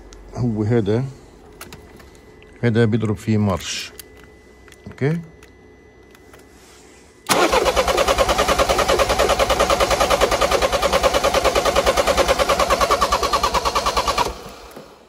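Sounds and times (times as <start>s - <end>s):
starter motor cranking engine: 7.3s - 15.0s.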